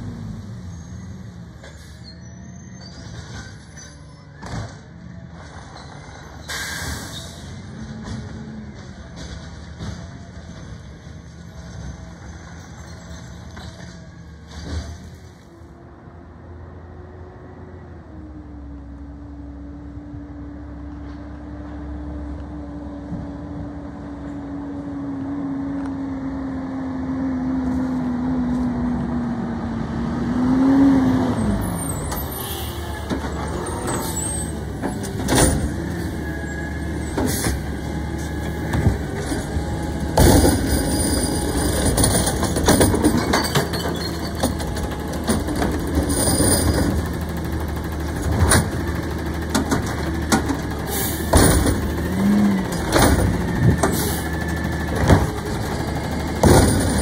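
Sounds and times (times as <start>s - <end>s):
garbage truck diesel engine: 0.0s - 57.0s
metal clanks and knocks: 38.7s - 47.3s, 48.2s - 52.1s, 56.3s - 57.0s.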